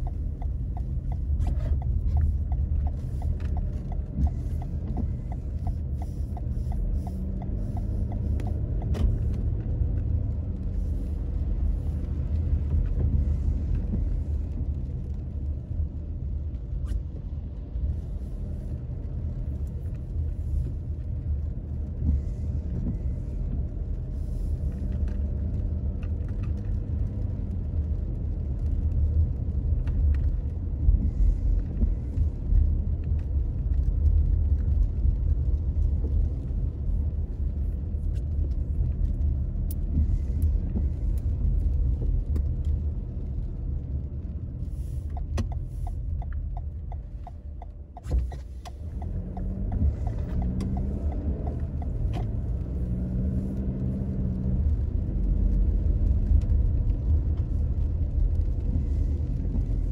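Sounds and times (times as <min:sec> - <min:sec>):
regular ticks: 0:00.0 - 0:10.1, 0:45.1 - 0:54.0
vehicle road rumble: 0:00.0 - 0:59.9.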